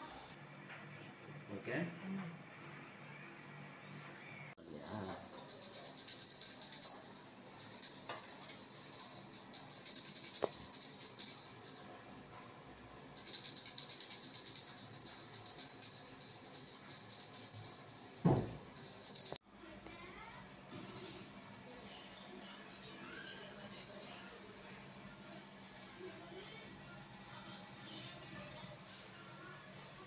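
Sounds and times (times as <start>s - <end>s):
hand bell ringing rapidly: 4.6s - 11.9s, 13.2s - 19.4s.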